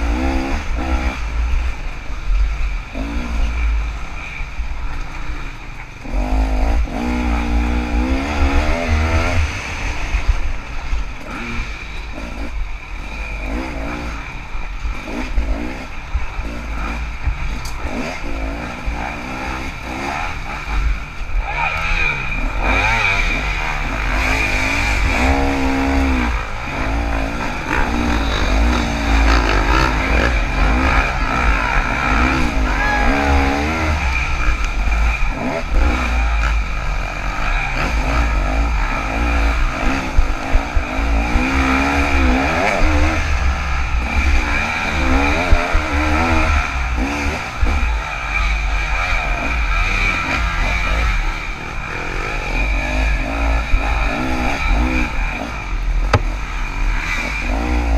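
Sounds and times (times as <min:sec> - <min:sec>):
dirt bike engine revving: 0:00.0 - 0:57.9
sharp knocks: 0:56.1 - 0:56.3.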